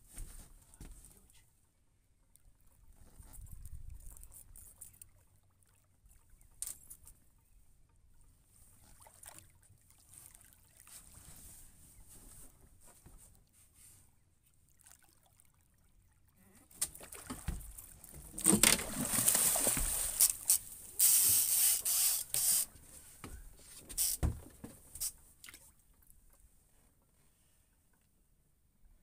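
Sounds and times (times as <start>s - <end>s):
fish thrashing and splashing water: 16.8s - 22.7s.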